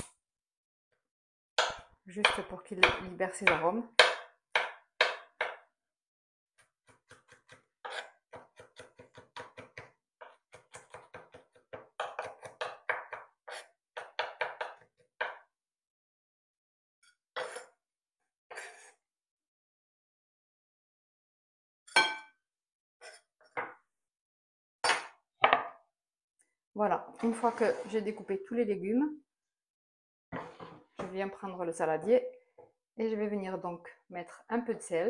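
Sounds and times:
knife chopping on wooden board: 1.6s - 5.7s, 6.6s - 15.5s.

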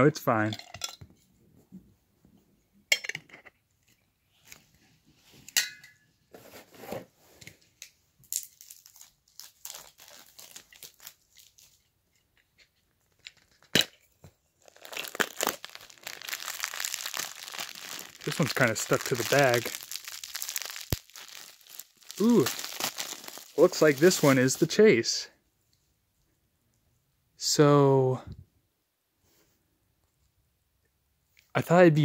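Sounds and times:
plastic bag crinkling and tearing: 8.3s - 11.8s, 14.6s - 24.9s.

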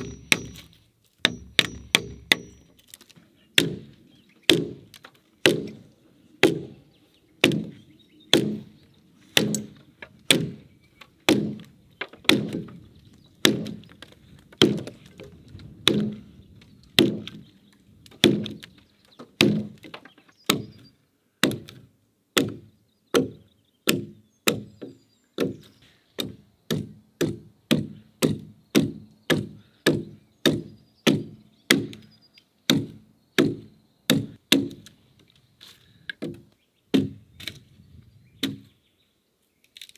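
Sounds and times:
axe chopping into log: 3.6s - 3.9s, 4.5s - 5.8s, 9.4s - 10.6s, 11.3s - 12.8s, 13.4s - 13.8s, 14.6s - 15.0s, 15.8s - 16.2s, 17.0s - 17.4s, 18.2s - 18.8s, 19.4s - 20.8s, 21.4s - 21.8s, 26.2s - 32.0s, 32.7s - 34.9s, 36.2s - 37.6s, 38.4s - 38.6s.

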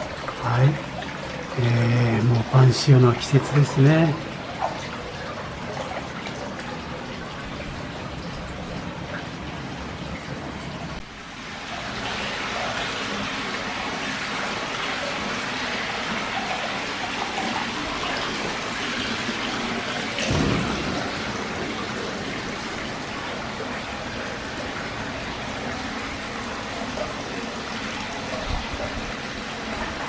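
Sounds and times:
water pouring into a bath: 0.0s - 30.0s
thump: 20.2s - 21.1s.

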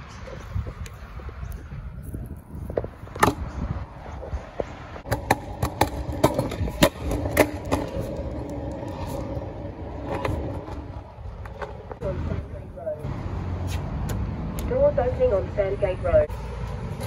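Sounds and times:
scooter wheels rumbling: 0.0s - 13.0s.

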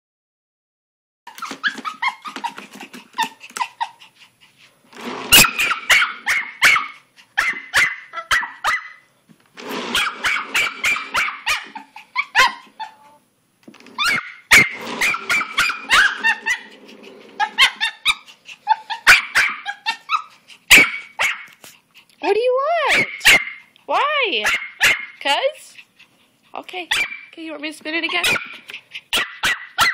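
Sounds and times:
puppy barking and growling: 5.0s - 13.2s, 13.9s - 21.6s, 22.8s - 23.7s, 24.4s - 25.2s, 26.9s - 27.3s, 28.1s - 29.9s.

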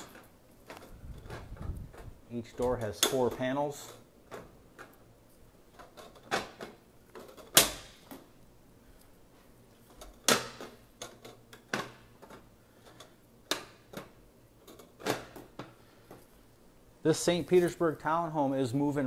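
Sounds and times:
shutters clacking shut: 0.0s - 4.9s.

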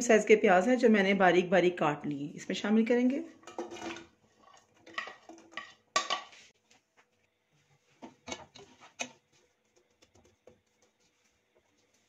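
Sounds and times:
spatula scraping a pot: 8.0s - 9.6s.

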